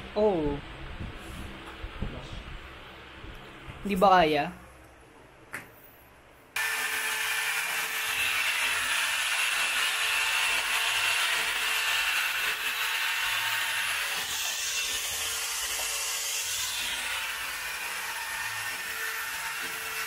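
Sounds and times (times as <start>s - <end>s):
power drill boring into wall: 6.6s - 20.0s.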